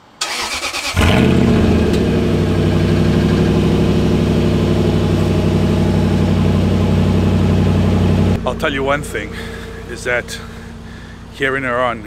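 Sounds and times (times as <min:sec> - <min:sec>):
car engine idling: 0:00.2 - 0:12.0.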